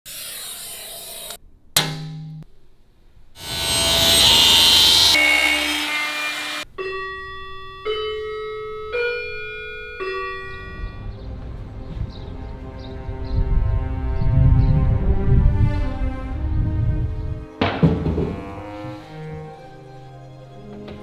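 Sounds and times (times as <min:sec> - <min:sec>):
loud rushing noise: 0:03.4 - 0:06.2
grandfather clock chiming: 0:06.6 - 0:11.2
low rumble: 0:10.7 - 0:17.5.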